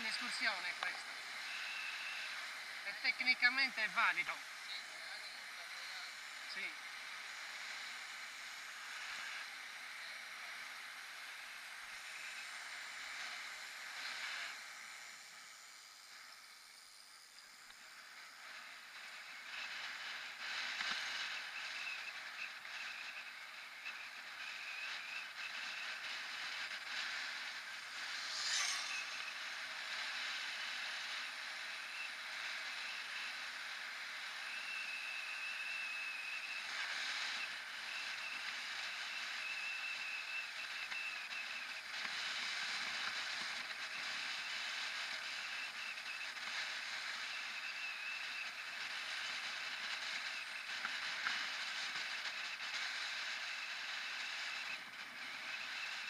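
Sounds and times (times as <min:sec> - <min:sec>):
thin high whine: 0:00.0 - 0:56.0
brief sharp sound: 0:28.1 - 0:29.4.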